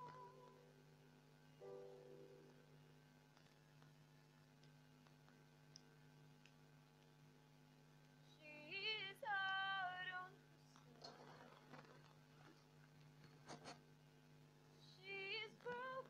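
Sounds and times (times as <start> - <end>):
woman singing: 0.0 - 0.6, 8.3 - 11.0, 14.8 - 16.0
faint steady hum: 0.0 - 16.0.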